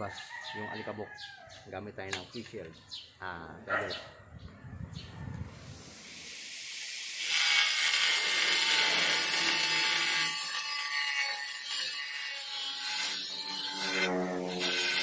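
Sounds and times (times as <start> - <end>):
angle grinder cutting tile: 6.4 - 15.0.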